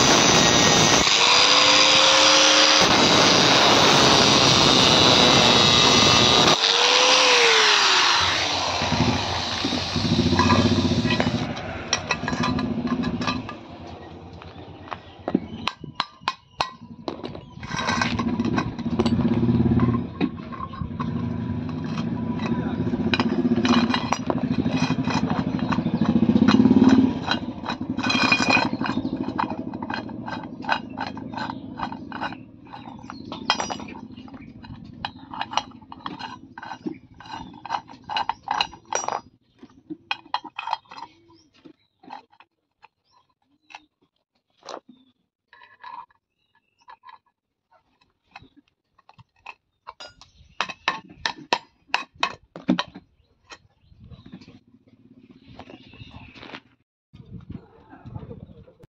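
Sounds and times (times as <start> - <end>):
engine running: 0.0 - 15.5, 18.0 - 38.8
metal clicking and rattling: 8.2 - 14.0, 15.6 - 39.4, 40.0 - 41.4.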